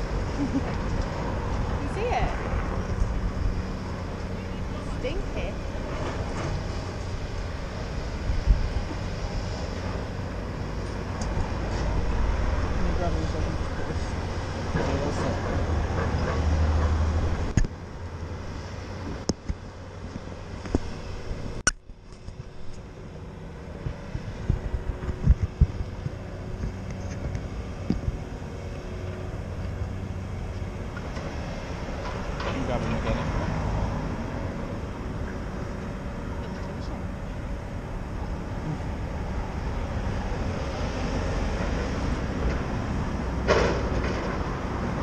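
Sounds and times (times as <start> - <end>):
steady low rumble: 0.0 - 45.0
wind on microphone: 23.8 - 28.4.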